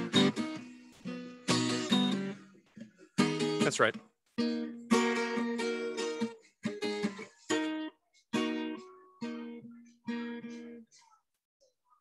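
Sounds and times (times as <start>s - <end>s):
acoustic guitar strummed chords: 0.0s - 2.6s, 3.2s - 10.7s.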